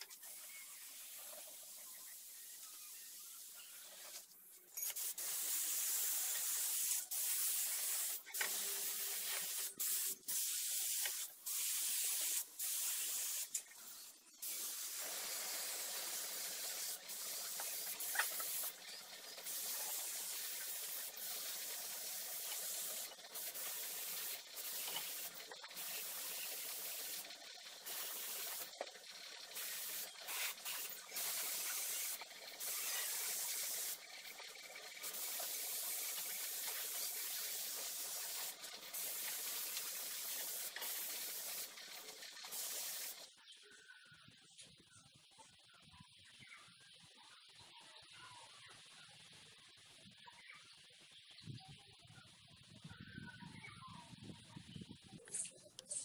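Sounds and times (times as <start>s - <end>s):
hissing spray bursts: 0.0s - 43.3s.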